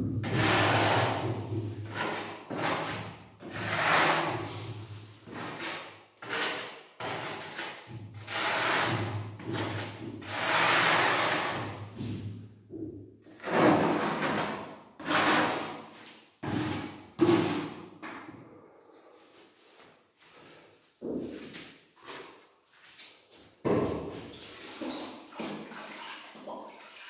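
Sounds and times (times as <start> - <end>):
trowel scraping tile adhesive: 0.2 - 12.1, 13.3 - 17.8, 24.3 - 25.6.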